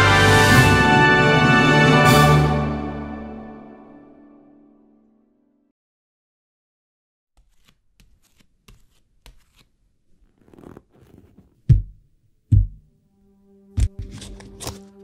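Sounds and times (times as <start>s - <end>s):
heavy low thump: 11.7s - 12.9s.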